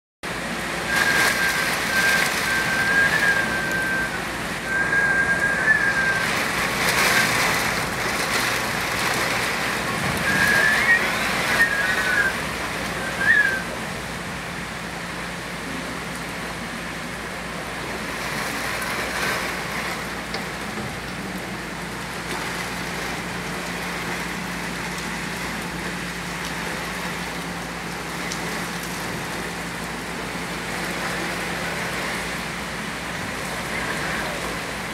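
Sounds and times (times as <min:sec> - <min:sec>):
heavy rain on leafy trees: 0:00.3 - 0:34.9
thin wavering whistle: 0:00.9 - 0:06.4, 0:10.2 - 0:12.4, 0:13.0 - 0:13.8.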